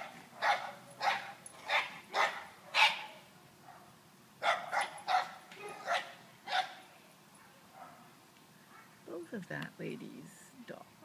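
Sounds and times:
small dogs barking: 0:00.0 - 0:08.1.

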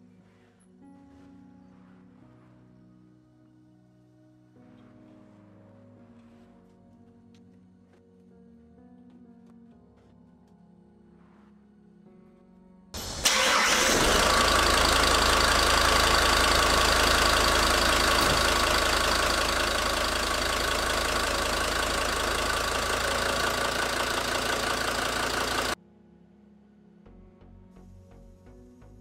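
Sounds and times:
car engine cranking: 0:13.0 - 0:25.8
car engine idling: 0:13.0 - 0:25.8.

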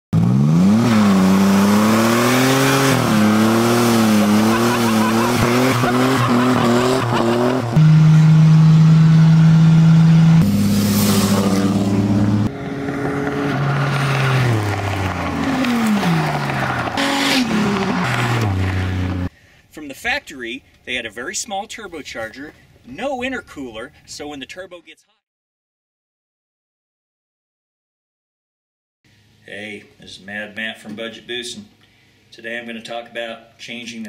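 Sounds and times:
car engine revving: 0:00.2 - 0:19.3.

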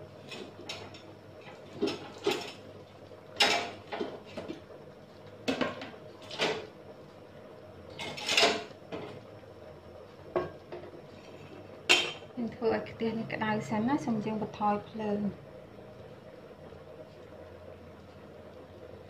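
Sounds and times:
kitchen pots and utensils clinking: 0:03.4 - 0:04.5, 0:08.0 - 0:09.1, 0:11.9 - 0:12.3.

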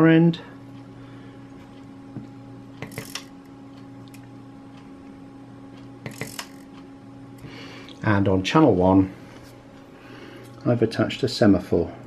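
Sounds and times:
steady low hum: 0:00.0 - 0:12.0
servo whirring with clicks: 0:02.8 - 0:03.3, 0:06.0 - 0:06.8.

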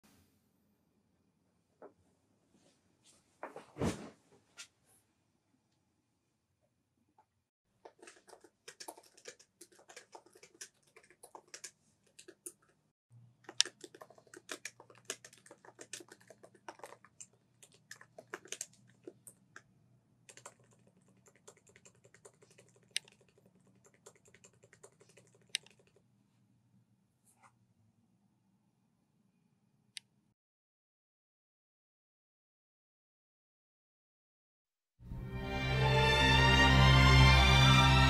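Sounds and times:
laptop keyboard typing: 0:07.9 - 0:12.8, 0:13.4 - 0:19.6, 0:20.3 - 0:26.0.

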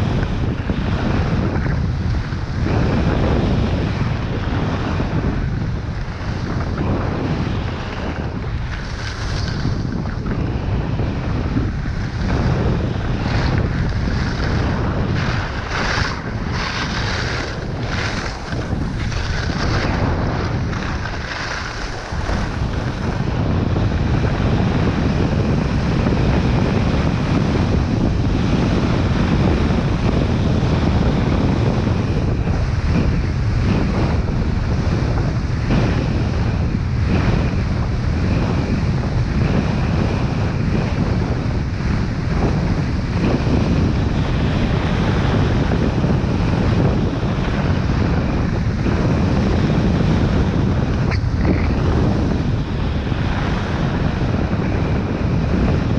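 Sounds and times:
wind buffeting microphone: 0:00.0 - 0:55.9
skis scraping on packed snow: 0:05.9 - 0:24.6
ski turn swishes: 0:06.0 - 0:23.6.

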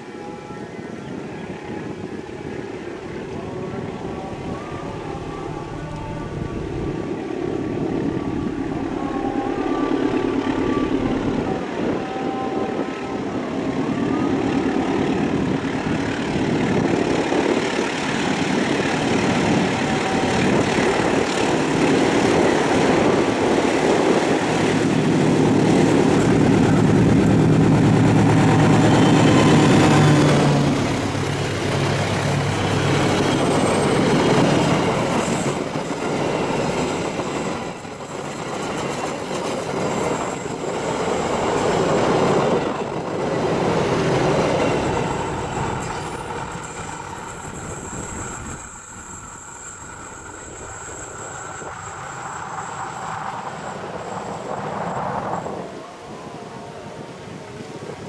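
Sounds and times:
locomotive engine: 0:14.9 - 0:55.7
train wheels clickety-clack: 0:32.4 - 0:54.9.

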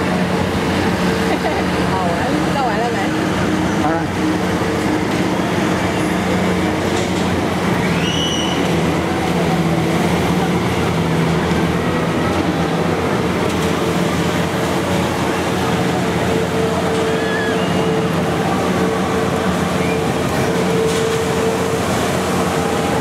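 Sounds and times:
crowd noise: 0:00.0 - 0:23.0
machinery hum: 0:00.0 - 0:23.0
high squeal: 0:07.8 - 0:08.8, 0:16.9 - 0:18.2.

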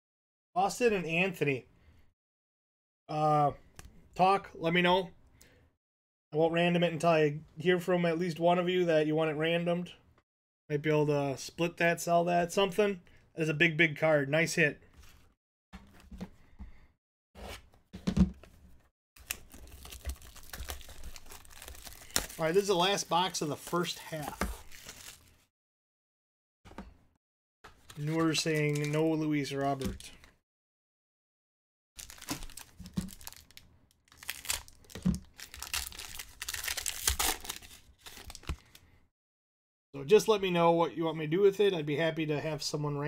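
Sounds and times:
plastic wrapping crinkling and tearing: 0:19.2 - 0:25.4, 0:32.0 - 0:38.8.

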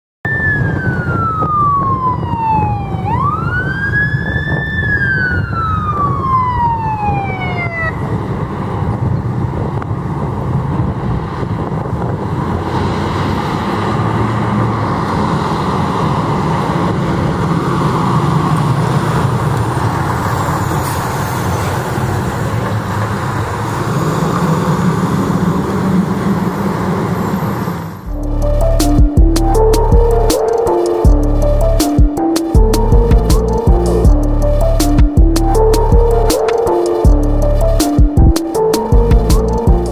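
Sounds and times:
fire engine siren: 0:00.2 - 0:09.0, 0:10.7 - 0:39.9
truck engine and road noise: 0:00.3 - 0:39.9.

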